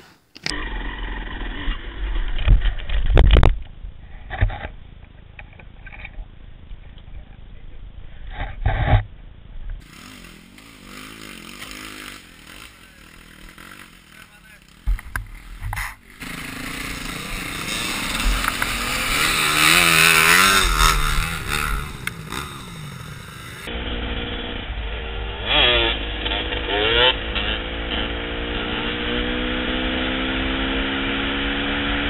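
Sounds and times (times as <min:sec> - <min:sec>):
dirt bike engine revving: 0:00.0 - 0:03.0, 0:09.8 - 0:32.0
tyres on gravel road: 0:00.0 - 0:30.1.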